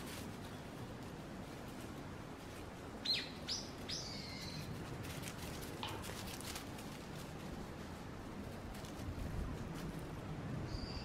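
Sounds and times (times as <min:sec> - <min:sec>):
bird chirping: 0:03.0 - 0:04.7, 0:10.7 - 0:11.0.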